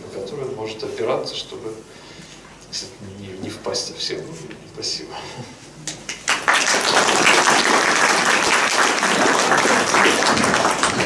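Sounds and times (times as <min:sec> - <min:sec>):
audience applauding: 0:06.1 - 0:11.0.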